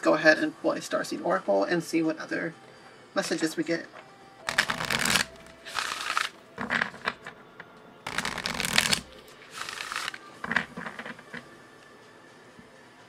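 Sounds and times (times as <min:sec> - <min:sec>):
cards being shuffled: 0:04.5 - 0:07.4, 0:08.1 - 0:11.5.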